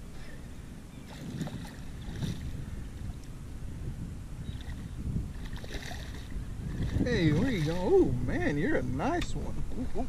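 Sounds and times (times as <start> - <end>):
wind rumbling on microphone: 0.0 - 10.0
light knocks and splashes: 5.4 - 7.8.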